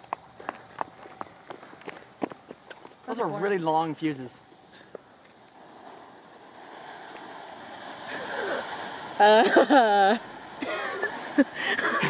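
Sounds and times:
footsteps on pavement: 0:00.0 - 0:03.1.

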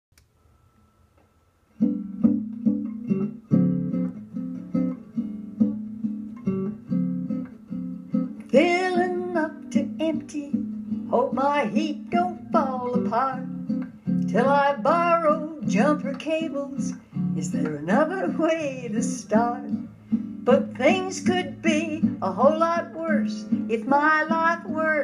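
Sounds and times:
acoustic guitar picking: 0:01.6 - 0:25.0
woman singing: 0:08.4 - 0:25.0.

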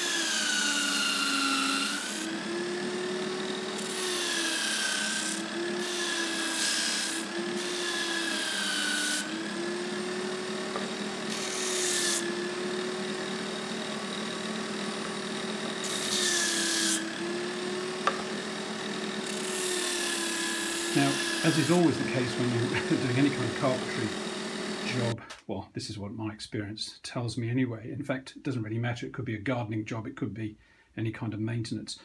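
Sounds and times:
sanding disc motor humming: 0:00.0 - 0:25.2
wood rasping on sanding disc: 0:00.0 - 0:25.2.

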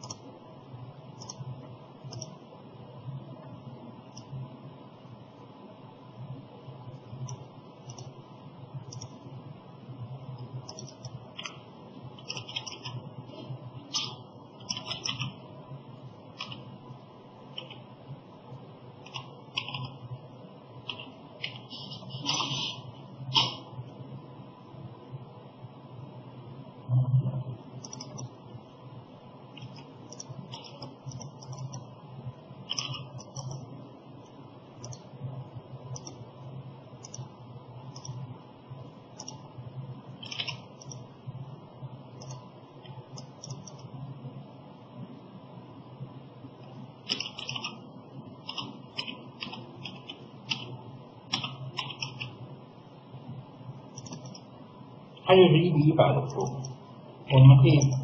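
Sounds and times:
mouse and keyboard clicks: 0:00.0 - 0:00.2, 0:01.2 - 0:01.4, 0:02.0 - 0:02.4, 0:04.1 - 0:04.3, 0:07.2 - 0:08.2, 0:08.8 - 0:09.2, 0:10.4 - 0:11.6, 0:12.2 - 0:13.0, 0:13.9 - 0:15.4, 0:16.4 - 0:16.6, 0:20.9 - 0:23.7, 0:27.8 - 0:28.3, 0:29.5 - 0:31.9, 0:32.7 - 0:35.1, 0:35.9 - 0:36.2, 0:37.0 - 0:37.3, 0:37.9 - 0:38.2, 0:39.2 - 0:39.4, 0:40.2 - 0:41.1, 0:42.2 - 0:43.9, 0:47.1 - 0:47.8, 0:48.4 - 0:50.7, 0:51.3 - 0:52.4, 0:53.9 - 0:54.5
steady low hum: 0:00.0 - 0:58.0.

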